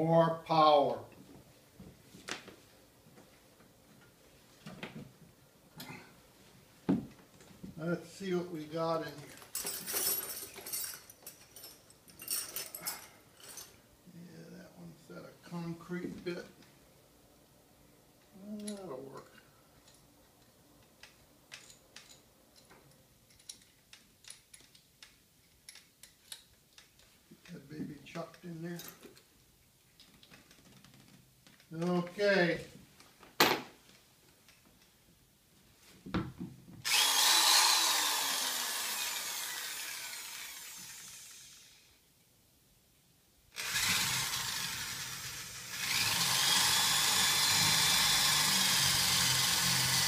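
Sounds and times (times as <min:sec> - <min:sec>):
electric drill motor whine: 0:36.8 - 0:41.9, 0:43.6 - 0:50.0.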